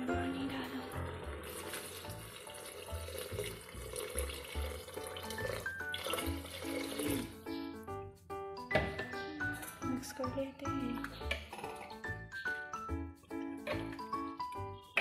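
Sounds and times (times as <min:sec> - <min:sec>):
water pouring into pot: 0:00.0 - 0:07.4.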